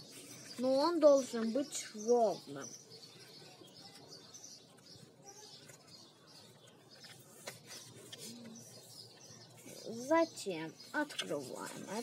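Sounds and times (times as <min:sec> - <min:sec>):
faint bird chirps: 0:00.0 - 0:12.0
paper rustling: 0:05.6 - 0:10.0, 0:11.0 - 0:12.0.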